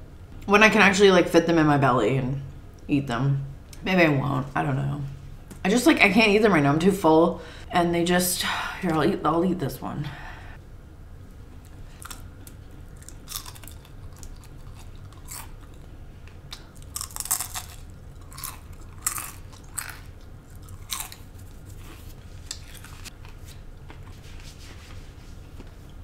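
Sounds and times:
crunching and chewing food: 11.6 - 24.3.

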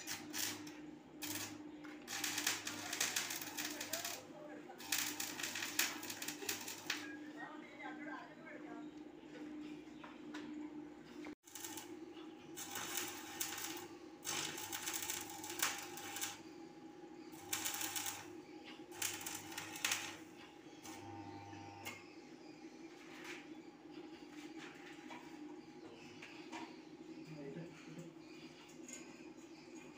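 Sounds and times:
welding arc crackling: 0.0 - 7.2, 11.4 - 16.4, 17.4 - 21.2
low welding hum: 0.0 - 29.9.

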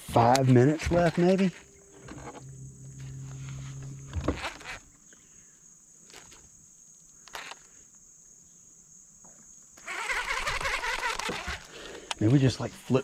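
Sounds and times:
high-pitched insect chorus: 0.2 - 13.0
low hum: 0.5 - 5.4.

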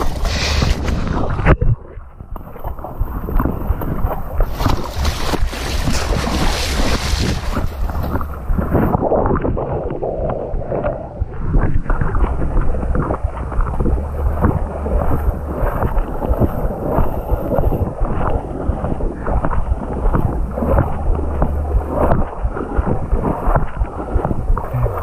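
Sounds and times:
wind rumble on microphone: 0.0 - 25.0
feet splashing in muddy water: 2.4 - 9.0.

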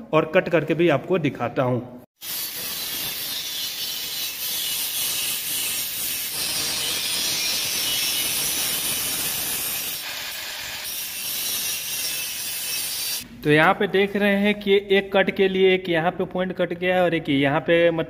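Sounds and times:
angle grinder cutting metal: 2.2 - 13.2.

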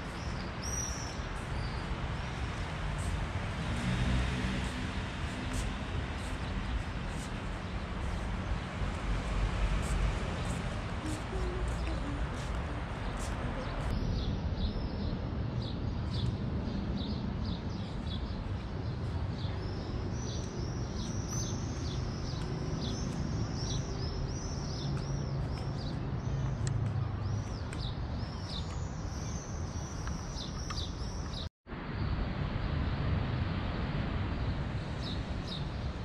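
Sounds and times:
distant traffic rumble: 0.0 - 36.0
birds chirping: 4.6 - 31.5.

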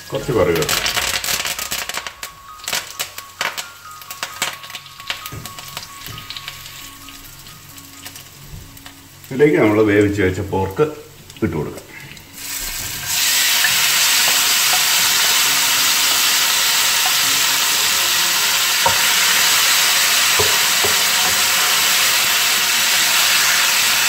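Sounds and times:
meat sizzling in hot oil: 0.0 - 24.0
wooden spatula tapping pan: 4.2 - 6.5, 18.8 - 21.5.

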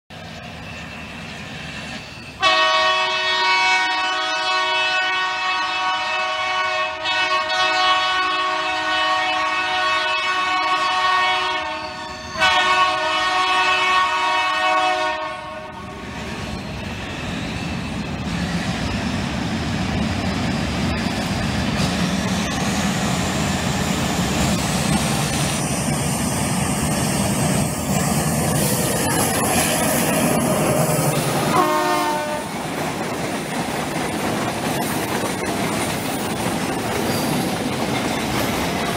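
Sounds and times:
diesel locomotive engine: 0.1 - 38.9
train wheels rumbling over rails: 0.1 - 38.9
locomotive air horn blasts: 2.4 - 16.1, 31.4 - 32.6.

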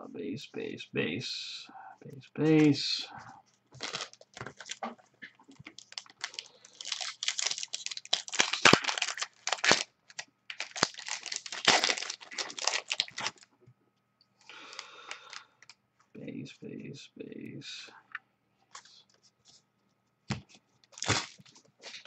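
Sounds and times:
foil wrappers crinkling and tearing: 3.7 - 4.8, 5.5 - 13.5, 14.6 - 15.4, 20.9 - 22.0.

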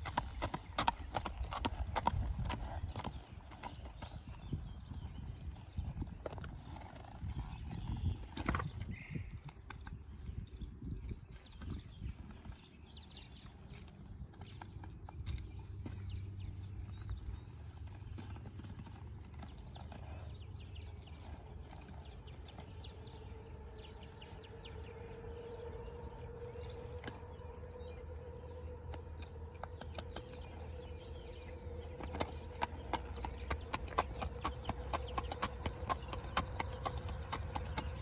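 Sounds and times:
faint steady hum: 0.0 - 38.0
horse hooves on asphalt: 0.0 - 38.0
low steady rumble: 15.2 - 38.0.

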